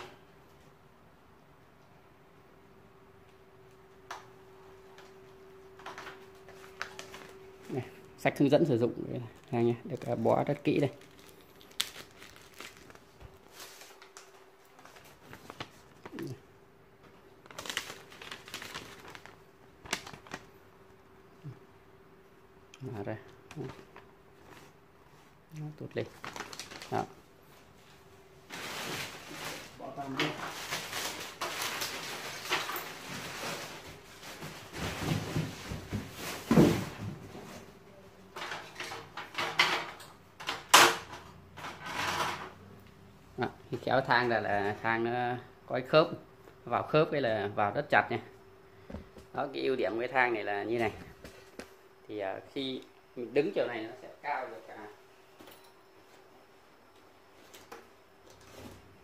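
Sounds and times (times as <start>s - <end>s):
plastic bag and paper rustling: 4.9s - 16.4s, 17.0s - 20.7s, 23.6s - 37.8s.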